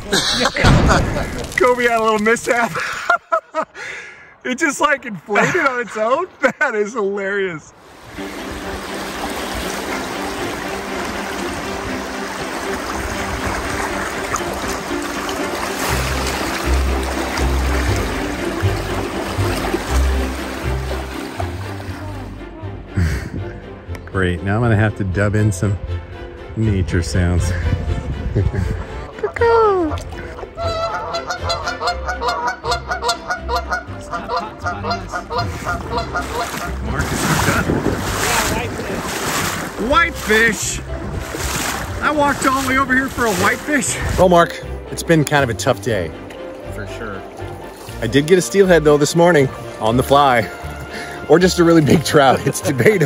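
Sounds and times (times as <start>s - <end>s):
river water flowing: 3.8s - 22.9s, 28.8s - 53.0s
faint sustained music tones: 7.6s - 37.2s
geese honking: 30.3s - 37.5s.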